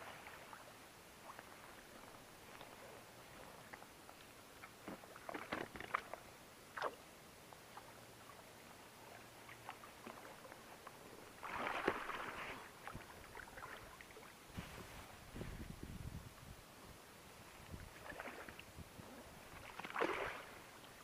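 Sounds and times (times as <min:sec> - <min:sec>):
fish thrashing in water: 0:11.4 - 0:12.5, 0:19.6 - 0:20.6.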